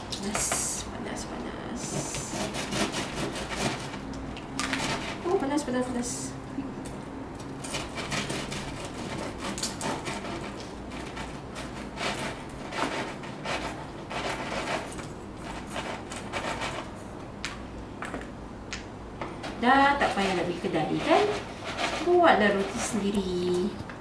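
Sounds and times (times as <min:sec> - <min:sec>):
knife sawing through bread crust: 0:01.8 - 0:05.4, 0:07.6 - 0:16.9, 0:20.0 - 0:23.0.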